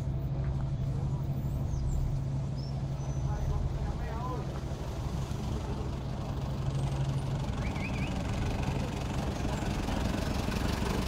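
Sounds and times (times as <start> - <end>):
vehicle engines idling in traffic: 0.0 - 11.0.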